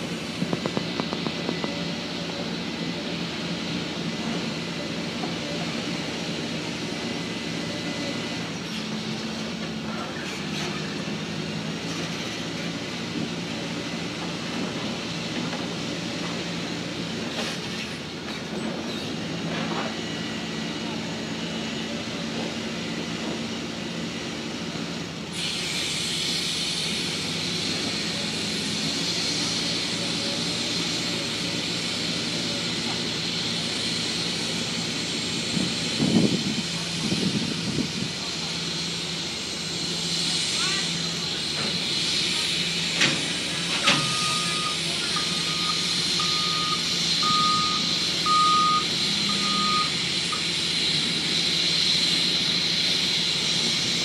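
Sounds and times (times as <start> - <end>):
heavy engine running: 0.0 - 54.0
loud steady hiss: 25.2 - 54.0.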